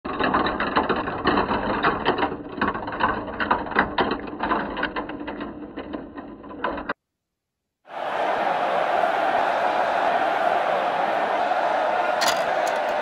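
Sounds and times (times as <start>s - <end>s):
plastic balls rattling down marble run: 0.1s - 7.0s, 12.2s - 13.0s.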